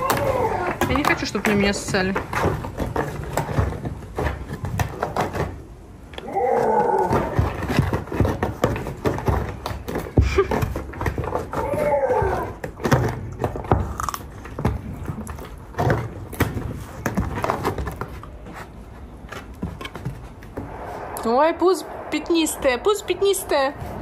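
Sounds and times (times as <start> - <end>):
watermelon being chewed: 13.2 - 15.7.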